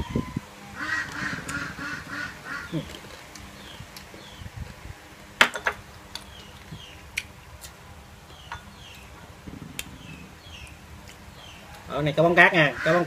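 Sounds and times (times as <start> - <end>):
small birds chirping: 0.2 - 4.7, 6.1 - 13.0.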